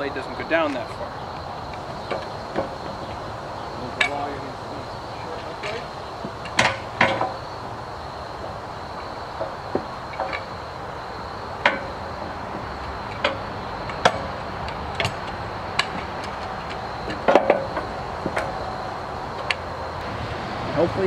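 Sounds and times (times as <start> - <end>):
log handling knocks and clanks: 0.0 - 7.8, 8.4 - 19.8.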